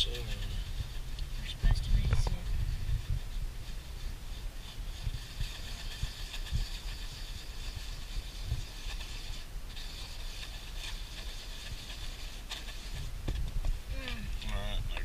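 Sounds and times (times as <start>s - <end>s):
sticks scraping putty on paper: 3.6s - 13.4s.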